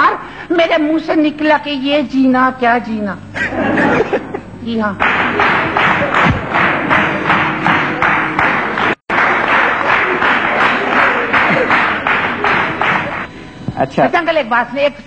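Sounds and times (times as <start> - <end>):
audience applauding: 5.0 - 13.3.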